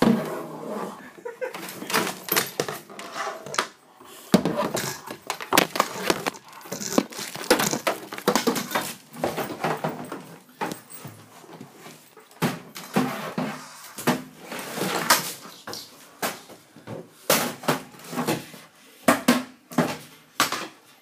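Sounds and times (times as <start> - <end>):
knocks and bumps: 4.4 - 10.2.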